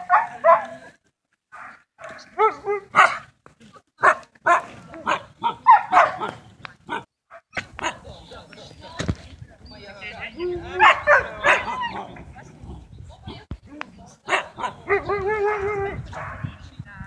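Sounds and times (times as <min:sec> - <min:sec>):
dogs barking and yelping: 0:01.6 - 0:03.3, 0:04.0 - 0:08.0, 0:10.5 - 0:12.2, 0:14.3 - 0:16.5.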